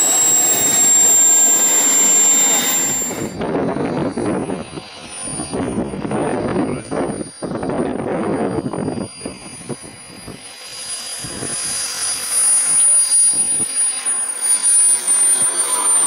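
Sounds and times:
low rumble: 0:00.0 - 0:03.4
model jet turbine whining: 0:00.0 - 0:16.0.

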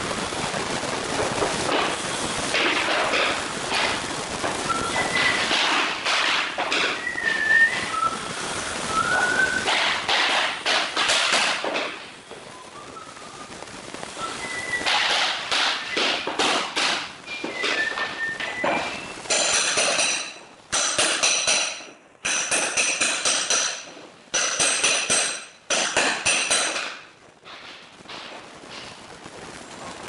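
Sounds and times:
hammer knocking wooden block: 0:09.7 - 0:11.9, 0:14.9 - 0:17.1.

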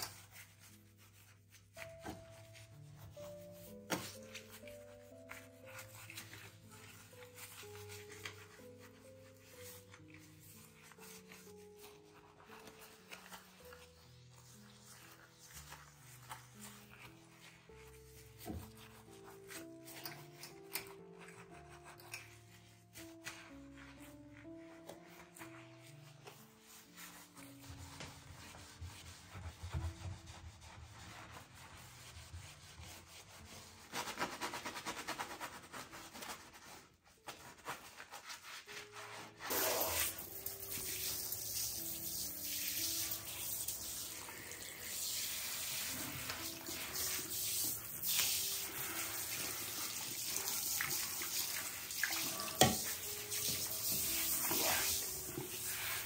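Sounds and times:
sponge scrubbing ceramic sink: 0:00.0 - 0:56.0
tap water running into basin: 0:39.5 - 0:55.9.

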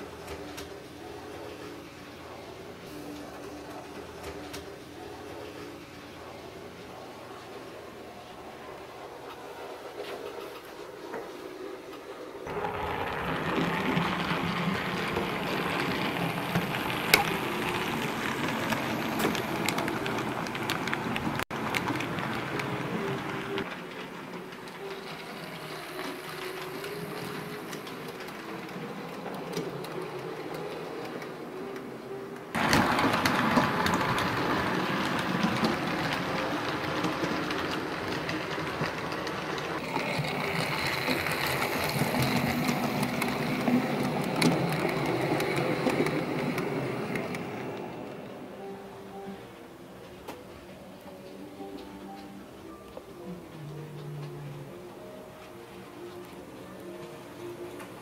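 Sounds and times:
wheels clicking on track: 0:12.5 - 0:48.6.

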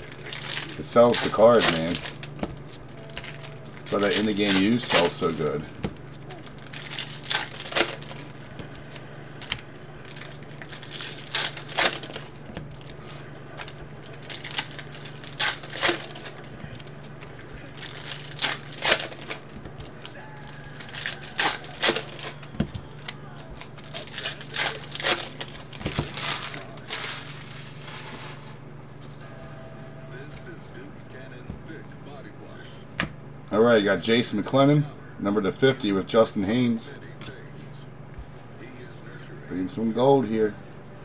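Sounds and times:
foil wrappers tearing and crinkling: 0:00.0 - 0:28.6
steady low hum: 0:00.0 - 0:41.0.

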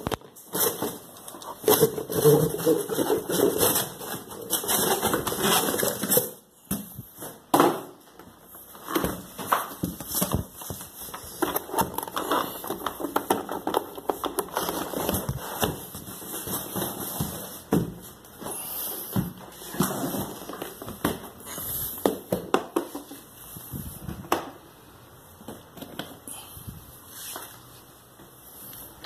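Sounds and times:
cardboard box crackling and scraping: 0:00.5 - 0:06.2.

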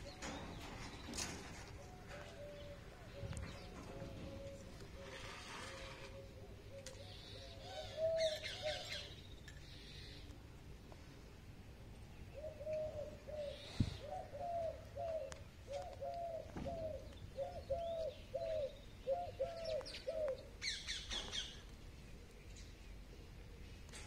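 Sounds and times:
bird cooing: 0:01.3 - 0:09.2, 0:12.3 - 0:21.5.

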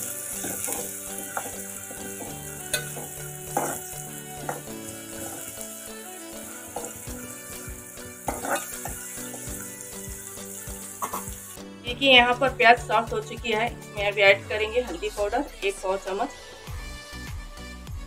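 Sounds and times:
onions sizzling in oil: 0:00.0 - 0:11.8.

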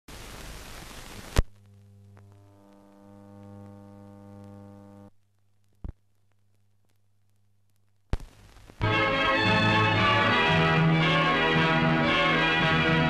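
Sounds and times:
buzz with many overtones: 0:00.1 - 0:05.2
electrical mains hum: 0:00.1 - 0:08.8
film soundtrack hiss: 0:00.1 - 0:13.0.

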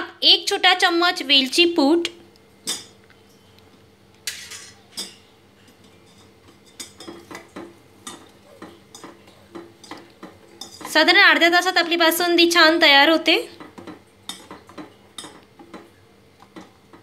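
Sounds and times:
spoon clinking in metal pan: 0:04.3 - 0:05.3.

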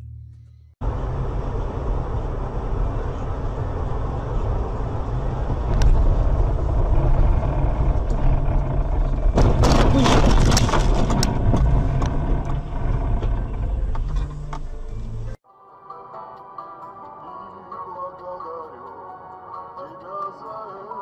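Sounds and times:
car cabin road and engine rumble: 0:00.8 - 0:15.4
car collision crunching and clattering: 0:09.0 - 0:14.8.

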